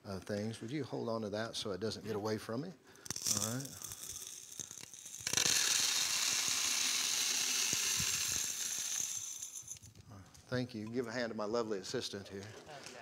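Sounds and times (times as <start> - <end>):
grains clicking: 3.0 - 10.0
grains pouring into container: 3.1 - 9.8.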